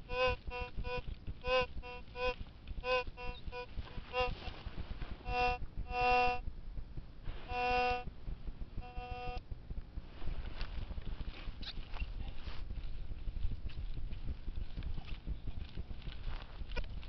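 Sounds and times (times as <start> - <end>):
metal detector buzzy beeps: 0.0 - 4.5, 5.2 - 6.4, 7.4 - 8.1, 8.8 - 9.4.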